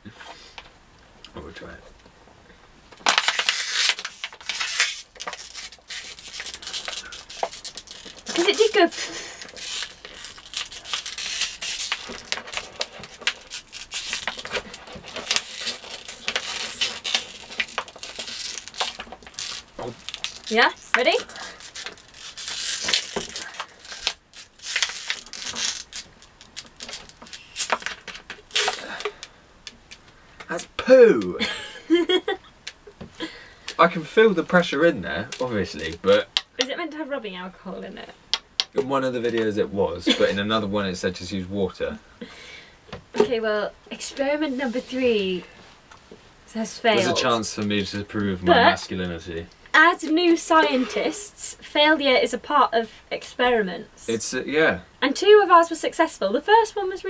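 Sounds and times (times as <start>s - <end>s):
plastic bottle crackling: 2.9s - 31.3s, 32.0s - 36.9s.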